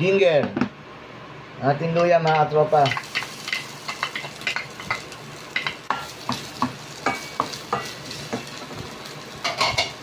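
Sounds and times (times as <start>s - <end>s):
ginger sizzling in oil: 2.6s - 10.0s.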